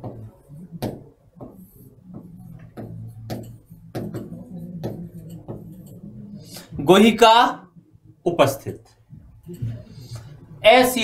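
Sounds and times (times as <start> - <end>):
marker writing on whiteboard: 0.0 - 7.1
faint low hum: 0.0 - 11.0.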